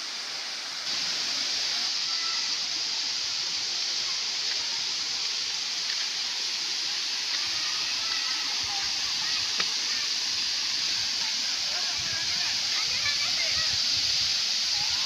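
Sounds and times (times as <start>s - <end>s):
waterfall rushing hiss: 0.0s - 15.0s.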